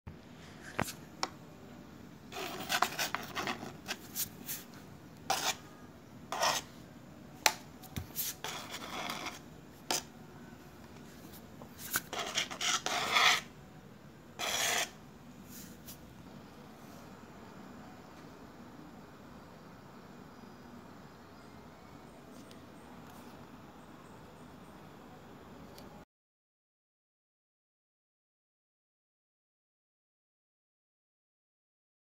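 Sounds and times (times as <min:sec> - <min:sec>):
scraping and rubbing: 0:02.3 - 0:05.7, 0:06.3 - 0:06.7, 0:08.0 - 0:10.1, 0:11.2 - 0:13.5, 0:14.4 - 0:16.0.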